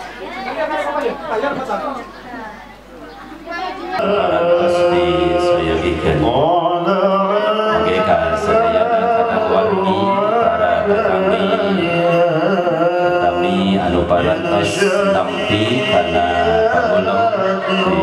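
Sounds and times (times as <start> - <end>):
person singing slow melody: 4.0 - 18.0.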